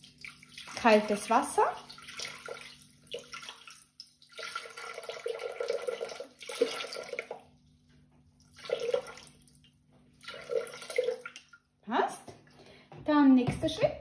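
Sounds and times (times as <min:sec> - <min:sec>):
water splashes: 0:00.0 - 0:07.4
water pouring into metal bowl: 0:00.0 - 0:07.5, 0:08.4 - 0:09.6, 0:10.2 - 0:11.6.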